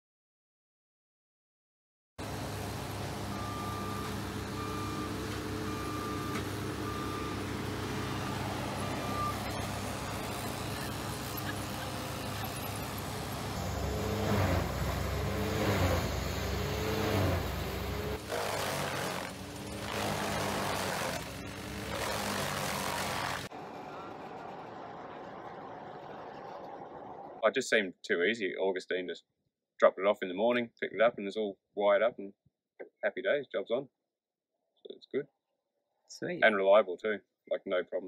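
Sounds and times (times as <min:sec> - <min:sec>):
machinery engines running: 0:02.2 - 0:27.4
reversing alarm beeping: 0:02.9 - 0:15.3.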